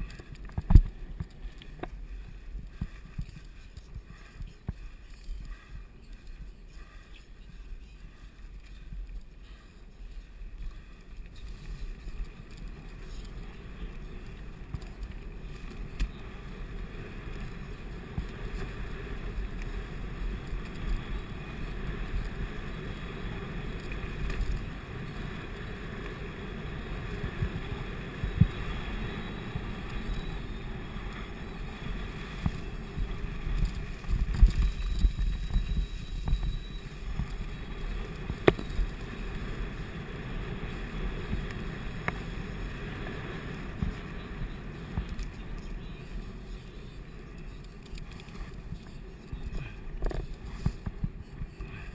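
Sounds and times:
bike tyre and drivetrain noise: 0:00.0 - 0:51.9
wind on microphone: 0:10.5 - 0:46.5.

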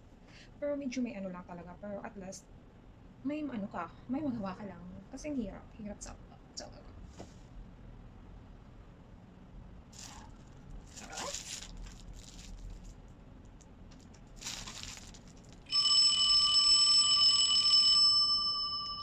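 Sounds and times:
telephone bell ringing: 0:15.7 - 0:19.0.

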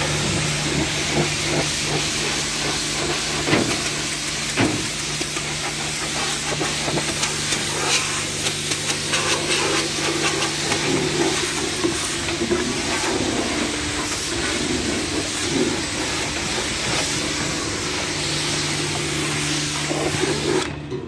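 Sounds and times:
pressure washer spray on metal: 0:00.0 - 0:20.7.

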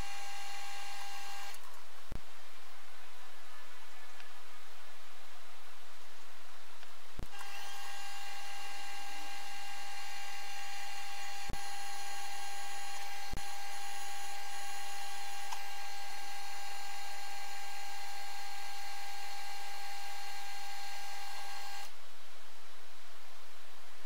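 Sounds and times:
lathe whining: 0:07.2 - 0:21.9
faint hiss: 0:21.9 - 0:24.0.

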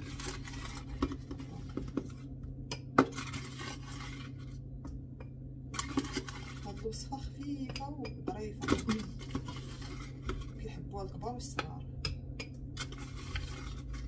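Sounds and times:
metal spoon scraping plastic container: 0:00.0 - 0:02.2, 0:03.1 - 0:04.5, 0:05.8 - 0:07.0, 0:08.6 - 0:10.6, 0:12.8 - 0:14.0
faint steady hum: 0:00.0 - 0:14.0.

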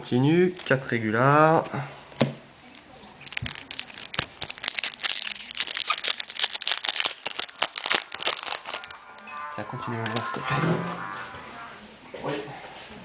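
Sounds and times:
card pack wrapper crinkling: 0:03.2 - 0:09.2.

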